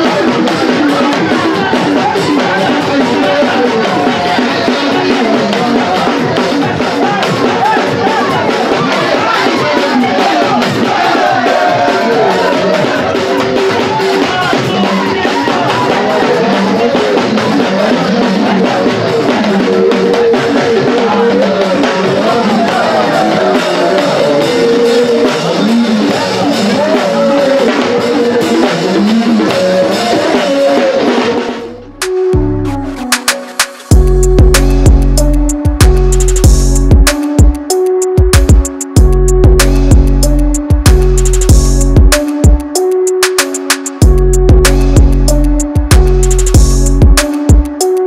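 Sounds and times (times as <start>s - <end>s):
upbeat dance music with vocals: 0.0s - 32.4s.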